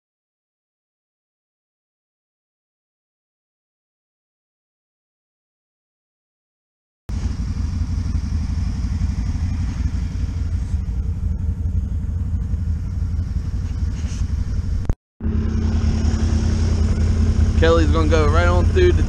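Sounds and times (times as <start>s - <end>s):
atv engine running: 7.1s - 19.0s.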